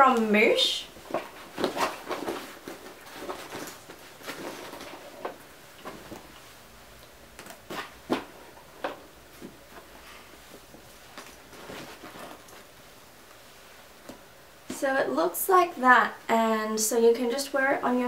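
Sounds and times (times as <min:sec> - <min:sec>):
bag rustling and knocking: 0:01.0 - 0:06.6, 0:07.3 - 0:12.8.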